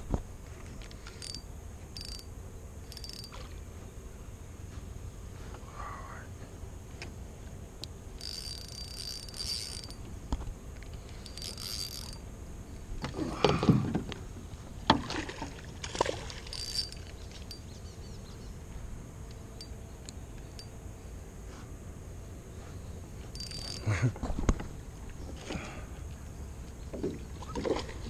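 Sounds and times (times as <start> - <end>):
fishing reel cranking: 1.0 - 1.4, 2.0 - 2.3, 2.9 - 3.4, 8.2 - 10.0, 10.9 - 12.2, 16.5 - 17.6, 23.4 - 23.9.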